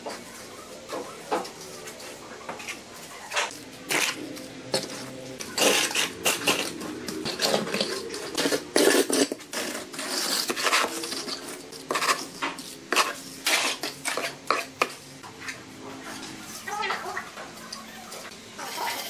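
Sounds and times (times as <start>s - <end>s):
hand float scraping wet cement: 4.8s - 14.8s.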